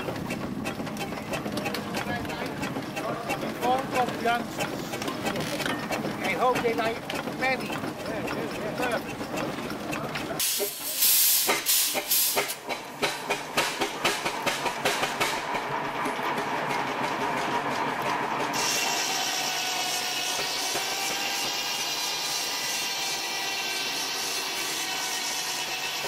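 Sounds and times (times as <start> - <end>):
steam engine exhaust beating: 0.0 - 26.0
steam hissing: 10.4 - 15.6, 18.5 - 26.0.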